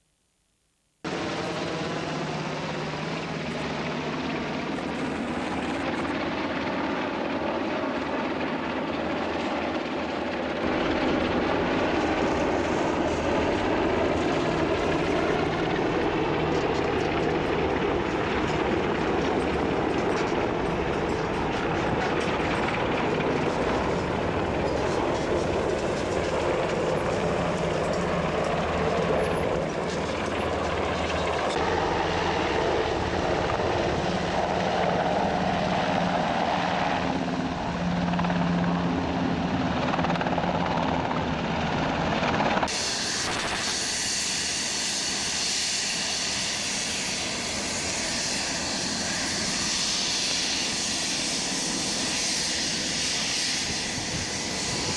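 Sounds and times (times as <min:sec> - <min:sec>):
helicopters flying overhead: 0:01.0 - 0:54.9.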